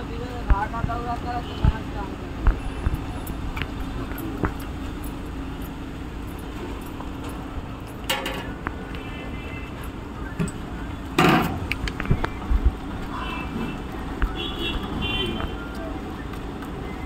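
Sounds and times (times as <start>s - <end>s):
ladles clinking against pans: 8.0s - 8.6s.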